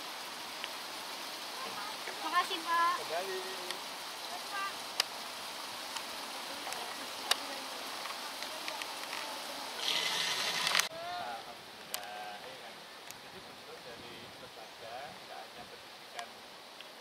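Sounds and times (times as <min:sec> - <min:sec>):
running water rushing: 0:00.0 - 0:17.0
faint distant voices: 0:06.0 - 0:16.6.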